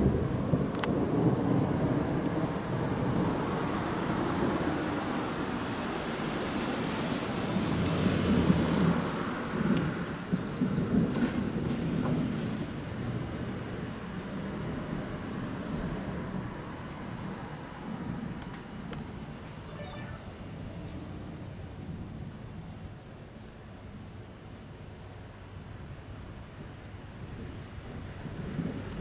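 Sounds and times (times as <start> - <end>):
rolling thunder rumble: 0.0 - 19.7, 25.6 - 29.0
car passing: 1.0 - 20.9.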